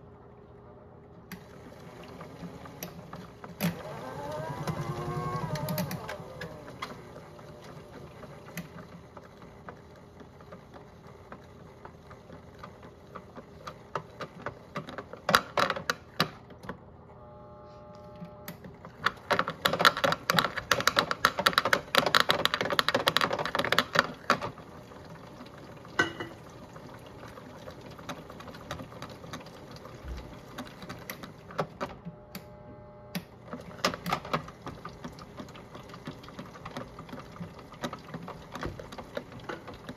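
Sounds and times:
faint motor whine: 0:00.0 - 0:15.2, 0:16.4 - 0:19.5, 0:24.2 - 0:39.9
toy washing machine motor humming: 0:01.4 - 0:16.0, 0:17.2 - 0:39.9
rapid clicking and clattering: 0:19.0 - 0:24.5.

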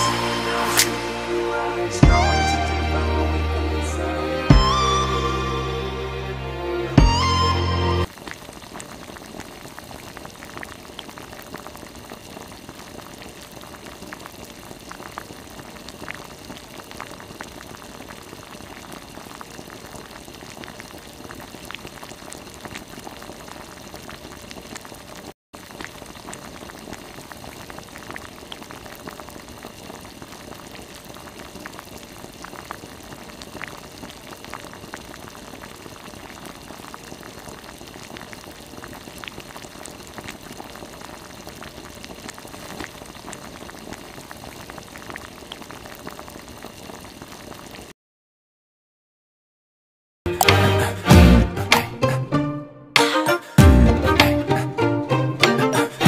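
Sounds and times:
water pouring into pool: 0:08.0 - 0:47.9.

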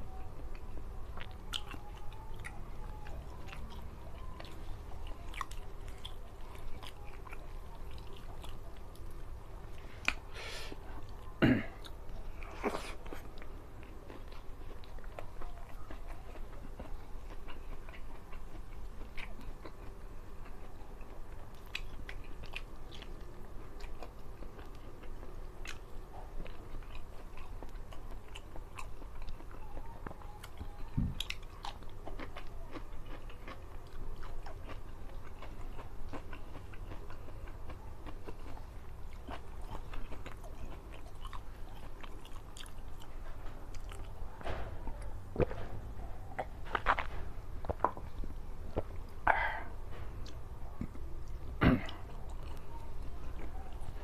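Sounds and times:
chewing and lip-smacking: 0:00.1 - 0:54.0
crunchy bites into vegetables: 0:11.7 - 0:49.1.

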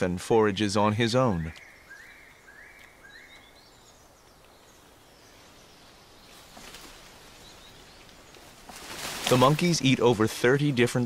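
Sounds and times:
short bird calls: 0:01.3 - 0:08.7
soft rustle: 0:03.8 - 0:10.0.

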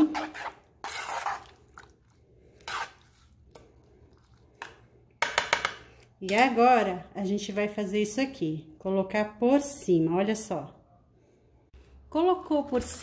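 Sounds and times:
spoon scraping through thick sauce: 0:00.0 - 0:04.6.

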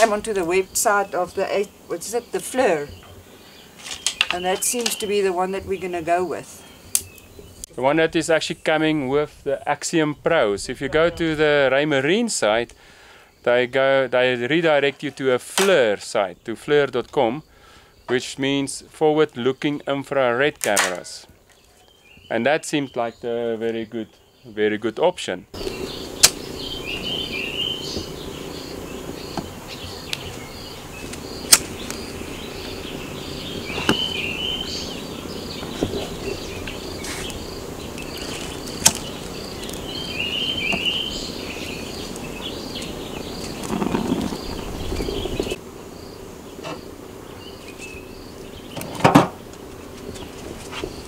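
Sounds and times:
bird calling: 0:00.0 - 0:07.8, 0:25.6 - 0:49.0
cricket chirping: 0:25.6 - 0:49.4.

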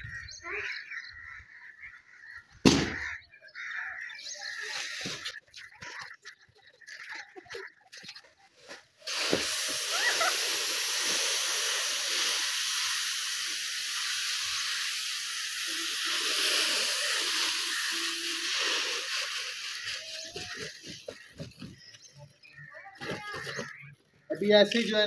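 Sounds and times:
rice grains pouring onto concrete: 0:09.1 - 0:20.8.

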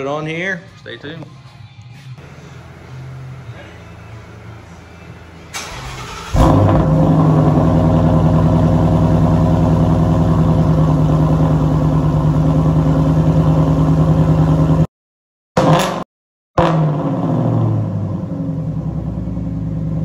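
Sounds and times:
car engine starting: 0:02.2 - 0:14.9, 0:16.6 - 0:20.0
loud engine idle: 0:02.2 - 0:14.9.

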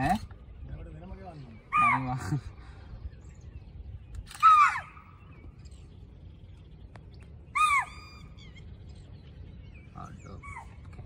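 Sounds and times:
faint bird chirps: 0:00.0 - 0:11.0
deer alarm calls: 0:07.5 - 0:08.7.

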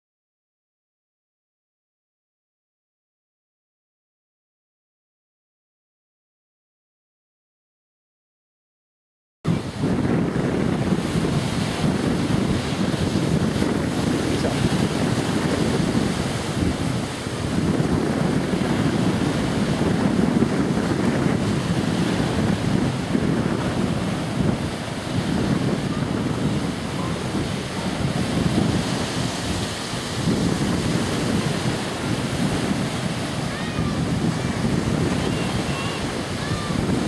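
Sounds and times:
lake waves breaking on shore: 0:09.5 - 0:37.0
wind buffeting microphone: 0:09.5 - 0:37.0.

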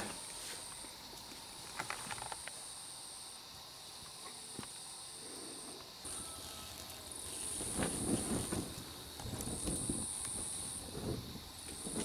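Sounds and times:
hum of insects: 0:00.0 - 0:12.0
insects trilling: 0:00.0 - 0:12.0
soft rustle: 0:05.6 - 0:12.0.

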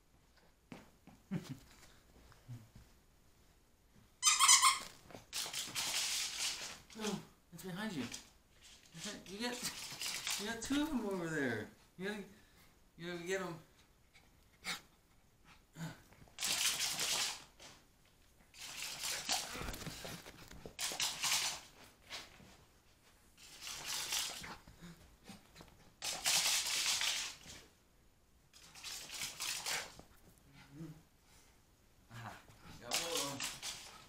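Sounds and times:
scratchy rustling: 0:32.7 - 0:34.0.

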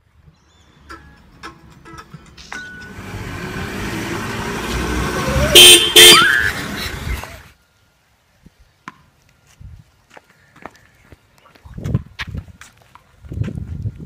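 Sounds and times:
car engine and tyres rumble: 0:00.0 - 0:07.6
car horn toots: 0:04.2 - 0:06.8.

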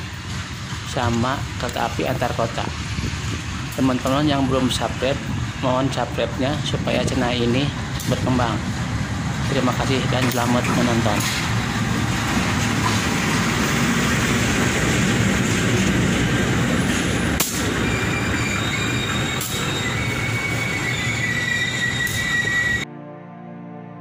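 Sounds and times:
train wheels on rails: 0:00.0 - 0:22.8
diesel locomotive passing: 0:00.0 - 0:22.9
train wheel squeal: 0:16.8 - 0:22.8.

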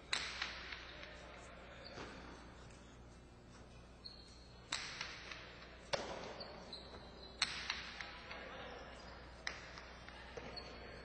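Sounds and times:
ball cracking against walls: 0:00.1 - 0:00.9, 0:04.7 - 0:06.4, 0:07.4 - 0:08.1.

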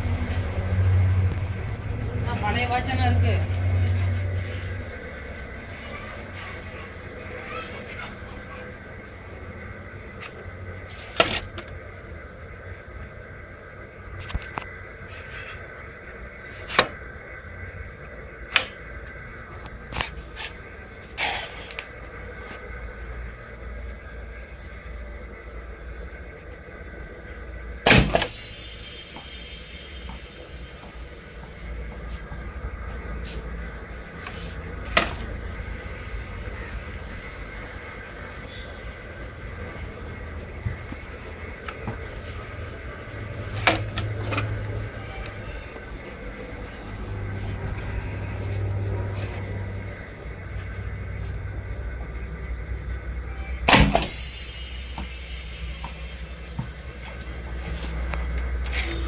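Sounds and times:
escaping air hissing: 0:27.9 - 0:32.2, 0:53.9 - 0:57.8.

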